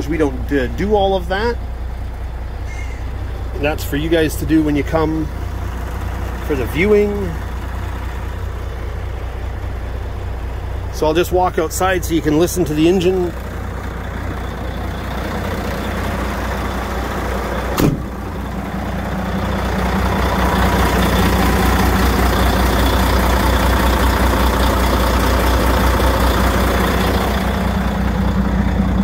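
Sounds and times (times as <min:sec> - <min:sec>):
diesel truck engine idling: 0:00.0 - 0:29.0
sharp knock: 0:17.8 - 0:18.1.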